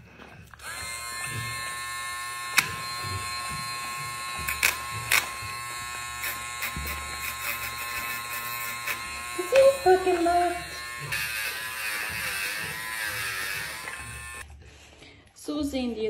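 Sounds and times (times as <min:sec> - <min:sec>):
nail grinder whining: 0:00.5 - 0:14.5
grinder scratching nail: 0:00.6 - 0:14.5.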